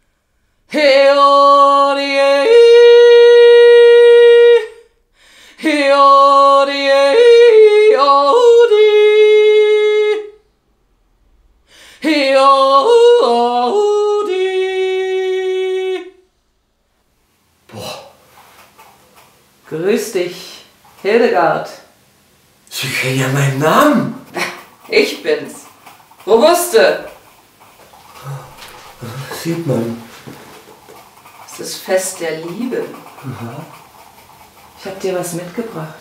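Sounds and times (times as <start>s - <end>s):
woman yodeling: 0.7s - 4.8s, 5.6s - 10.3s, 12.0s - 16.2s.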